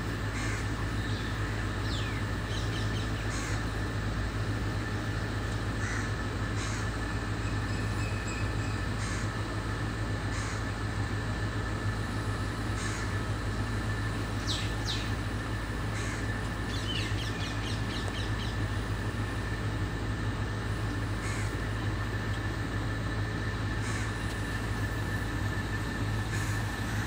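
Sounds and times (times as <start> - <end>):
steady low hum: 0.0 - 27.0
crows cawing: 0.3 - 1.6, 3.2 - 3.7, 5.7 - 7.0, 8.9 - 9.4, 10.2 - 10.8, 12.7 - 13.2, 15.9 - 16.4, 21.1 - 21.7, 23.8 - 24.3, 26.2 - 27.0
rapid chirping calls: 0.4 - 3.7, 14.3 - 15.2, 15.9 - 18.7.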